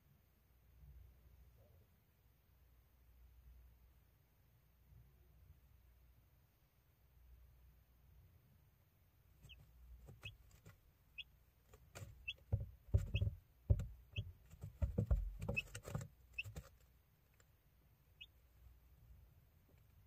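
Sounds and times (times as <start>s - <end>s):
chick peeping: 9.4s - 17.4s, 18.1s - 18.4s
soft thumps and rustling: 11.7s - 16.8s.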